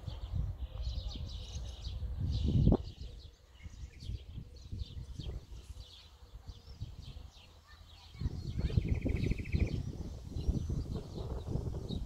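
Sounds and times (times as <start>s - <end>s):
songbirds chirping: 0.0s - 12.0s
bird trill: 7.4s - 12.0s
microphone rumble: 8.4s - 12.0s.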